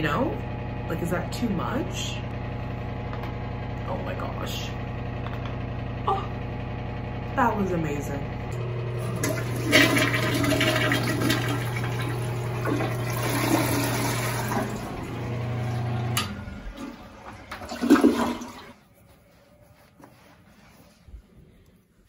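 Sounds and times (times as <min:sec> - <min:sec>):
steady hum: 0:00.0 - 0:22.0
toilet water rushing: 0:08.6 - 0:18.8.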